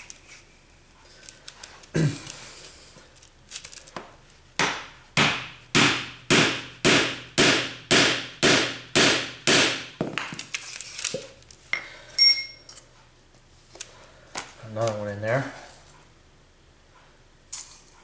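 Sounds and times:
rubber mallet striking metal: 4.6s - 9.9s
short ringing clink: 12.2s - 12.7s.

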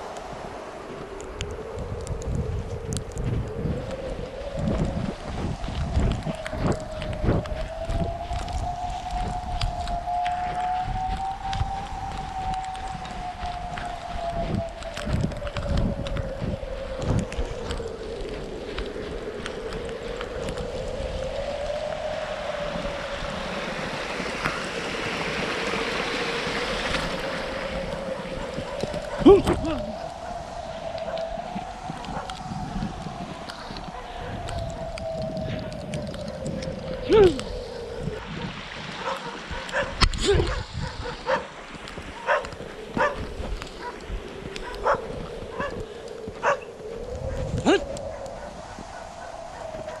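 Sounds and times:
howling wind: 0.0s - 50.0s
wind rumble on microphone: 0.0s - 50.0s
dog barking: 39.0s - 41.5s, 42.2s - 43.2s, 44.8s - 45.8s, 46.4s - 46.7s, 48.3s - 50.0s.

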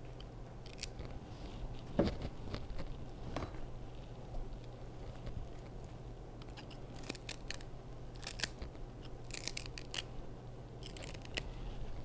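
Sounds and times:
celery snapping and tearing: 0.6s - 1.2s, 6.4s - 10.1s, 10.8s - 11.5s.

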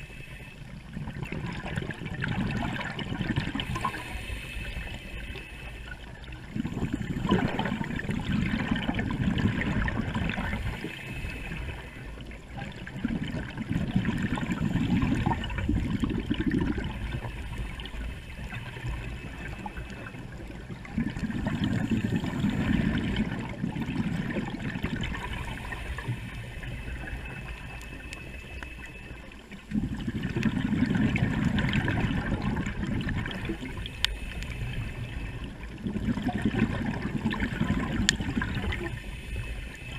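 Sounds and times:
regulator breathing hiss: 0.0s - 0.8s, 3.6s - 7.0s, 10.6s - 12.2s, 25.3s - 28.9s, 33.6s - 35.5s, 38.8s - 39.9s
exhaled bubbles rumbling underwater: 0.0s - 39.9s.

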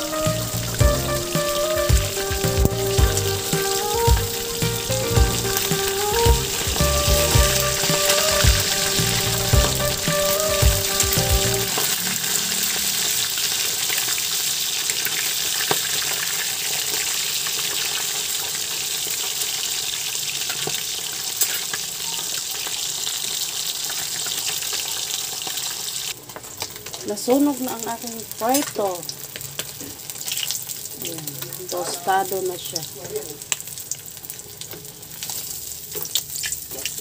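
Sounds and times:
music: 0.0s - 11.7s
fish sizzling in oil: 0.0s - 37.0s.

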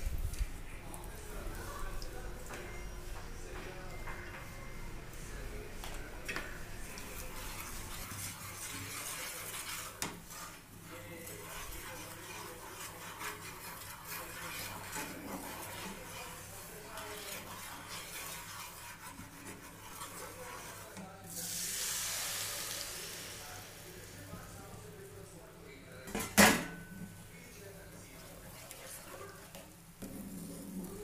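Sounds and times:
spatula scraping a pan: 6.8s - 24.6s, 28.3s - 31.0s
oil sizzling: 7.3s - 24.3s.

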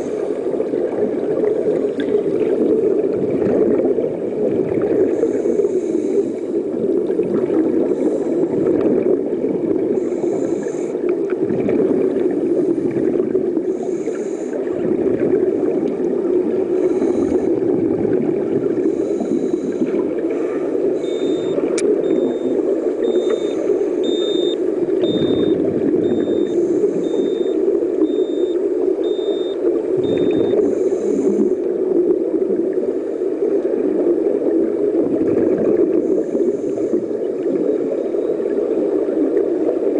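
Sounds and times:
diver bubbles hissing and gurgling: 0.0s - 39.9s
muffled underwater noise: 0.0s - 39.9s
electronic beeps: 21.0s - 30.6s.

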